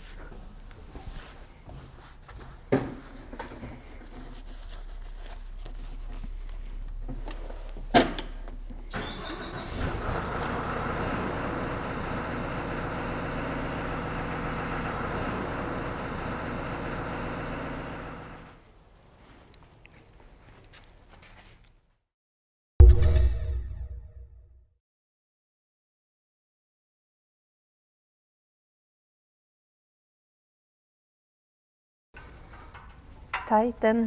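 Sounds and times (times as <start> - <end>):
diesel roller engine running: 8.5 - 18.6.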